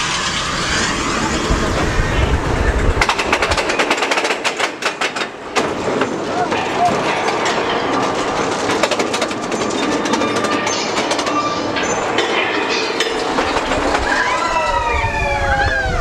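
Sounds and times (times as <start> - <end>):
wind buffeting microphone: 0.0 - 6.0, 13.0 - 16.0
roller coaster lift clicking: 0.0 - 16.0.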